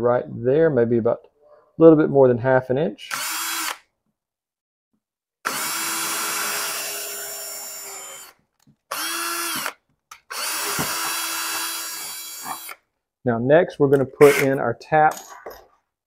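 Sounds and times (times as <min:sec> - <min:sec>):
cordless drill boring pipe: 0:03.1 - 0:03.8, 0:05.4 - 0:12.8, 0:14.2 - 0:14.6.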